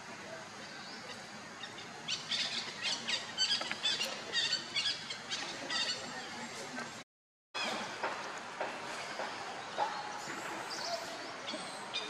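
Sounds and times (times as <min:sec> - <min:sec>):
steady background noise: 0:00.0 - 0:07.0, 0:07.6 - 0:12.0.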